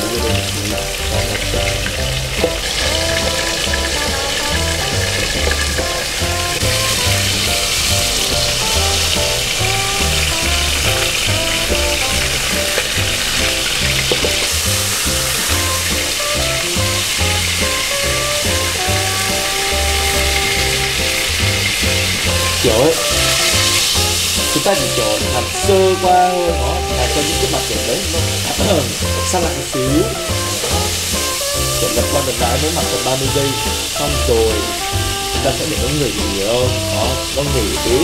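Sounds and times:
background music with bass: 0.0 - 38.0
beef sizzling in a frying pan: 0.0 - 38.0.

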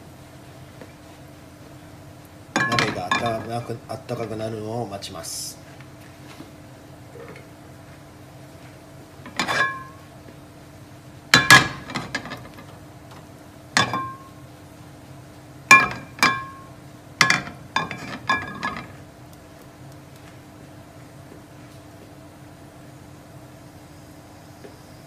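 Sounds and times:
steady low hum: 0.0 - 25.0
metal kitchenware clanking: 9.3 - 10.0, 13.8 - 14.3, 15.7 - 19.0.

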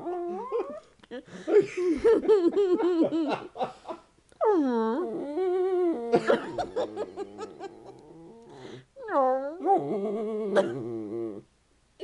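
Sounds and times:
dog whining: 0.0 - 0.9, 7.3 - 11.5
people laughing: 1.5 - 4.0.

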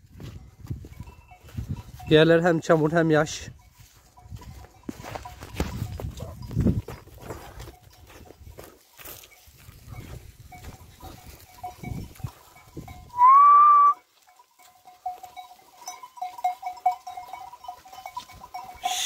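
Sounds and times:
loud whistle: 13.2 - 14.0.

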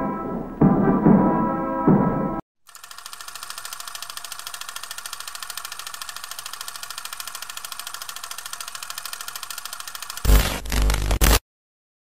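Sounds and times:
film projector clattering: 2.7 - 10.3.

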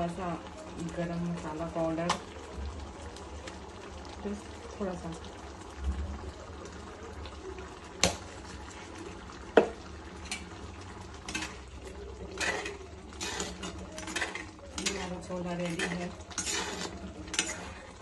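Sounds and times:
curry simmering and bubbling: 0.0 - 18.0
spoon stirring and scraping pot: 8.5 - 18.0.

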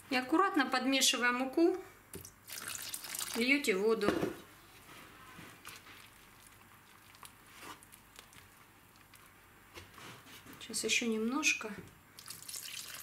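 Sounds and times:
hand squishing dough: 4.6 - 11.2.

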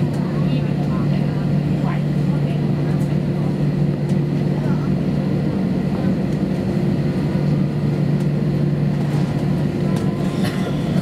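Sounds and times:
jet engines humming at idle: 0.0 - 11.0.

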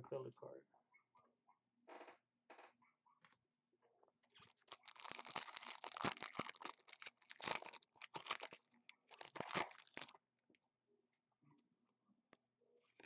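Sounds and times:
foil wrapper tearing and crinkling: 4.4 - 10.2.

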